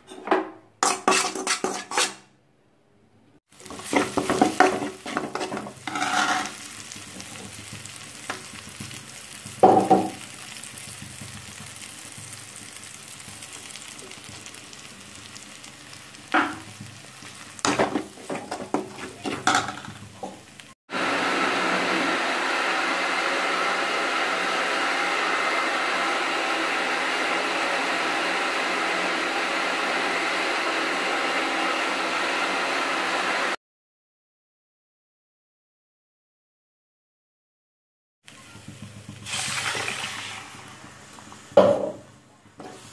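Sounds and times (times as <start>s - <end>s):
food sizzling in a pan: 3.5s - 33.6s, 38.3s - 42.9s
mixer grinder whirring: 3.6s - 10.2s, 20.2s - 33.6s
metal spoon knocking a pan: 3.7s - 6.1s, 9.5s - 10.2s, 16.4s - 16.9s, 17.6s - 20.4s.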